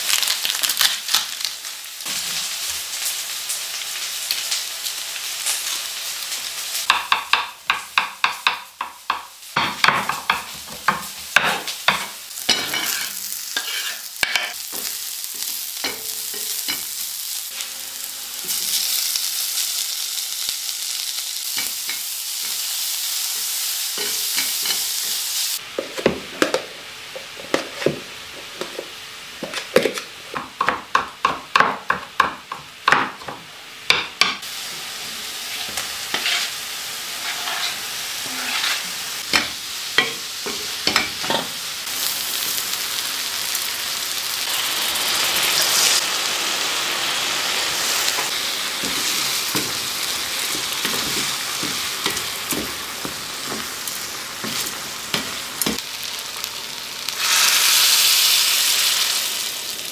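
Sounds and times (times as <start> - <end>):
food sizzling in a frying pan: 0.0 - 59.9
wooden spoon scraping a pan: 11.4 - 15.5, 35.4 - 41.4.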